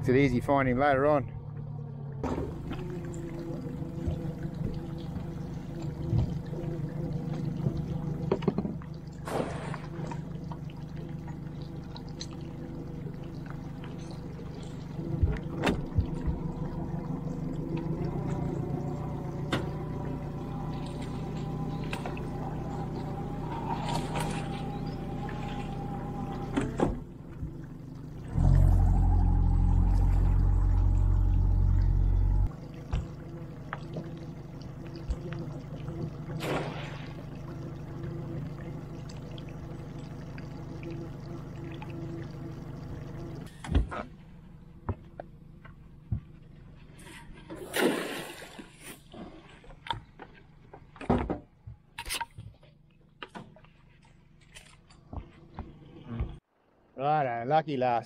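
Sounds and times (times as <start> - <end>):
boat motor running: 0.0 - 47.7
water splashing: 1.4 - 43.5, 47.4 - 49.9
loud low rumble: 28.2 - 32.6.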